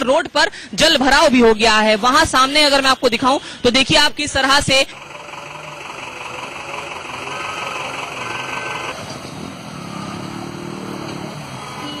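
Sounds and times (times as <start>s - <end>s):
motorcycle engine running: 4.9s - 12.0s.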